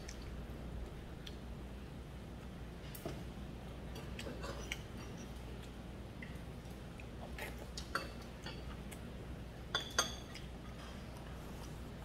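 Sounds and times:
low steady hum: 0:00.0 - 0:12.0
utensils clinking against bowls: 0:07.8 - 0:08.7, 0:09.7 - 0:11.0.

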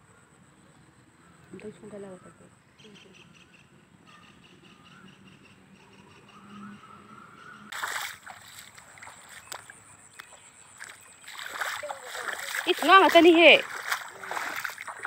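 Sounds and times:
water splashing and sloshing: 0:07.7 - 0:15.0.

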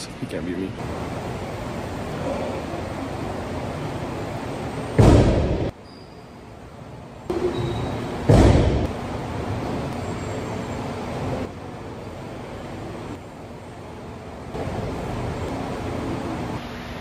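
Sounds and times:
room noise hiss: 0:00.0 - 0:17.0
loud thump: 0:05.0 - 0:05.7, 0:08.2 - 0:08.9.

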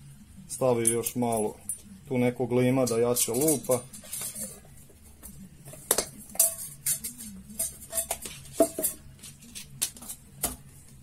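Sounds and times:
metal tin and lid clinking: 0:02.8 - 0:04.6, 0:05.9 - 0:10.2.

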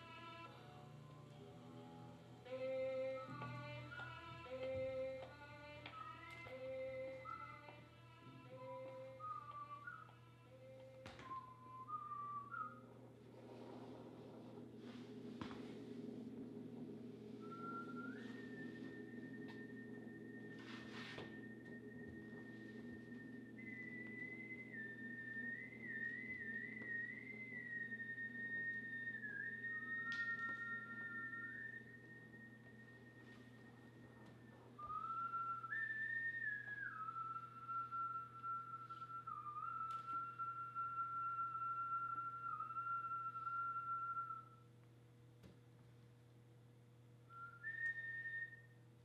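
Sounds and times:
faint steady hum: 0:00.0 - 0:49.0
lower tone: 0:06.0 - 0:44.7
low steady drone: 0:12.8 - 0:34.8.

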